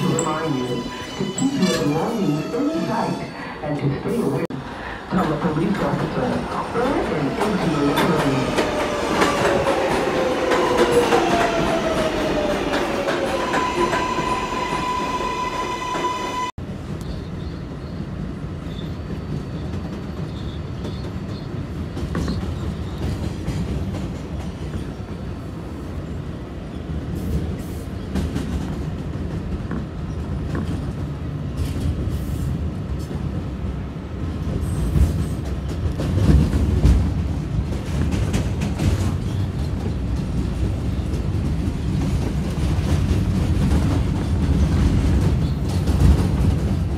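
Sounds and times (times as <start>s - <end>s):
train wheel rumble: 4.2s - 46.9s.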